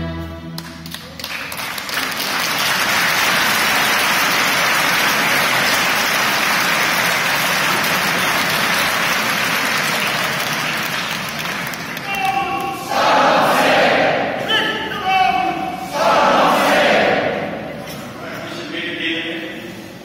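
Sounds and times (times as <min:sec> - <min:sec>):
congregation applauding: 0:00.6 - 0:13.8
choir singing held chord: 0:12.8 - 0:14.4, 0:15.7 - 0:17.7.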